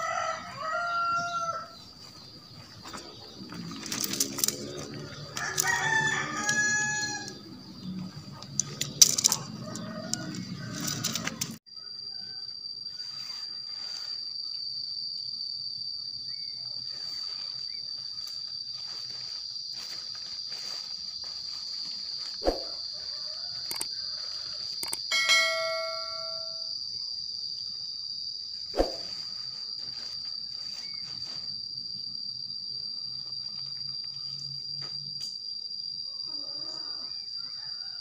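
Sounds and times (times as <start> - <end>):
high-pitched insect drone: 0.0 - 38.0
ringing ding: 25.1 - 26.7.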